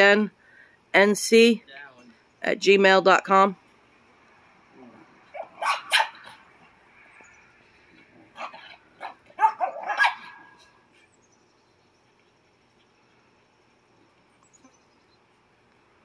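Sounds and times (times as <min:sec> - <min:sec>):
puppies barking: 0:05.3 - 0:06.4, 0:08.3 - 0:10.7.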